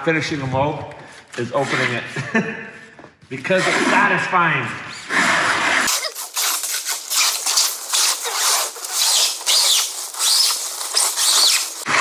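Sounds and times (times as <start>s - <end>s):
short high squeaks: 4.9s - 12.0s
fabric peeling with crackling rustle: 5.9s - 11.9s.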